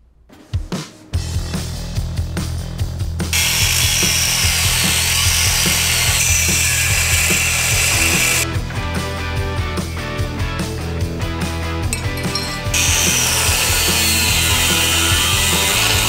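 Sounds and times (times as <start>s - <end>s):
background music with beat: 0.1s - 3.4s
angle grinder grinding steel: 3.4s - 8.4s, 12.0s - 16.0s.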